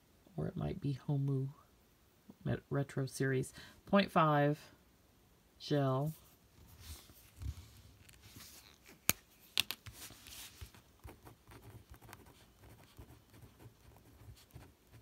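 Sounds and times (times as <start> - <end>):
pen scratching on paper: 11.0 - 15.0.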